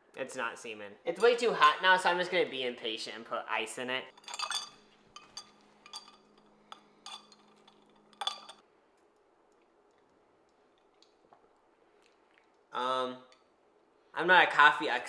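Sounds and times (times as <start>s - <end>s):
glass straw clinking in glass: 4.2s - 8.6s.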